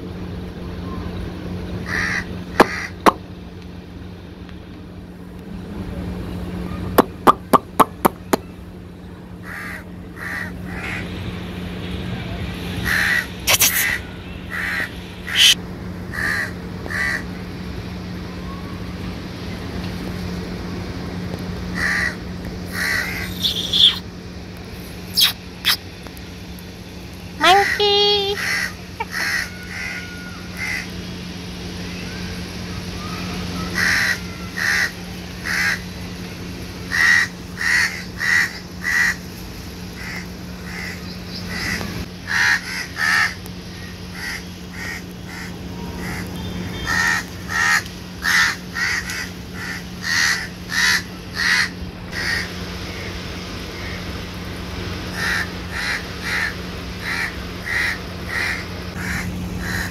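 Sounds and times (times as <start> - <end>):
steady low hum: 0.0 - 59.9
crows cawing: 1.8 - 3.1, 9.4 - 11.1, 12.8 - 17.3, 21.7 - 23.7, 28.4 - 31.0, 33.0 - 35.9, 36.9 - 39.2, 40.0 - 52.5, 55.1 - 59.9.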